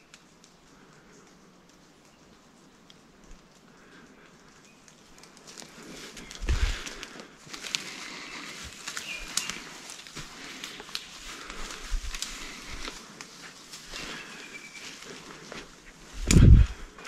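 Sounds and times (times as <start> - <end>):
footsteps through leaf litter: 5.4 - 16.8.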